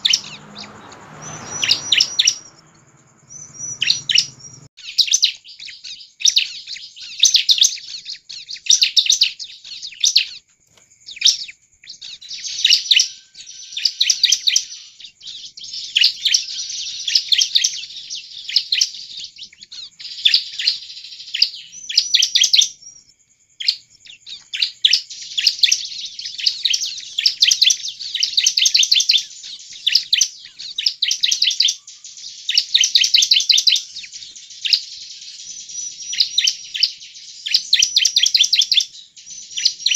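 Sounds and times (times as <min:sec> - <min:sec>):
bird singing high notes: 0:00.0 - 0:04.7.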